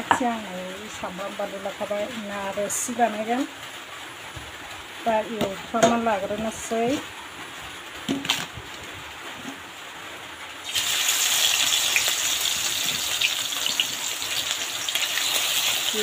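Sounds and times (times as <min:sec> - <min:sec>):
fish sizzling in hot oil: 0:10.6 - 0:16.0.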